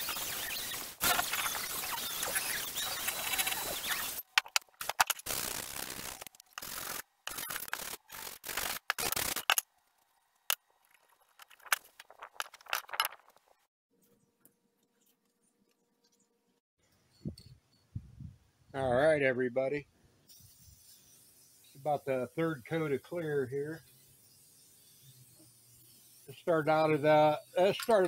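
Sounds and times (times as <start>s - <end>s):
tools clicking and knocking: 4.2s - 5.2s
drill wire brush scrubbing metal: 20.3s - 28.0s.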